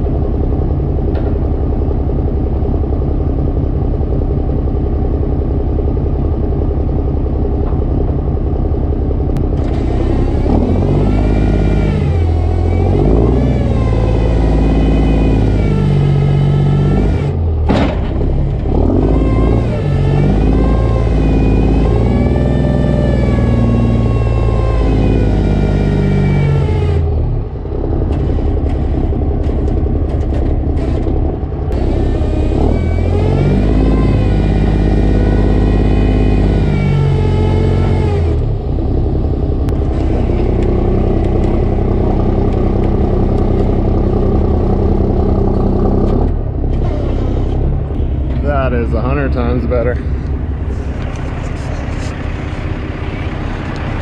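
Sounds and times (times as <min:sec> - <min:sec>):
diesel truck engine revving: 0:00.0 - 0:54.0
sharp metal clunk: 0:17.7 - 0:18.3.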